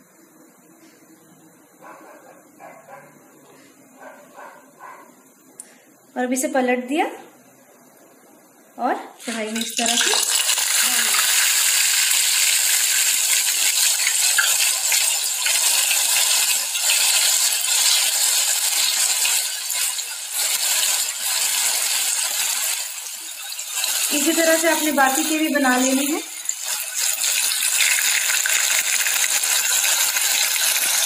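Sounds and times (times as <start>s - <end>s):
batter sizzling in hot oil: 9.2s - 31.0s.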